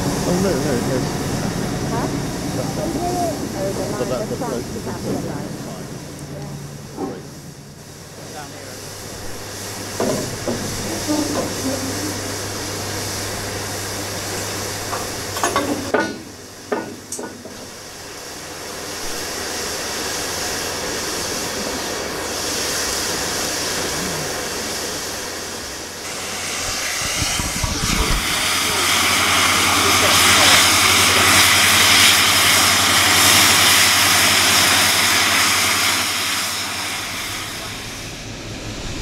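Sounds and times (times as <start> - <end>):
steam hissing: 0.0 - 39.0.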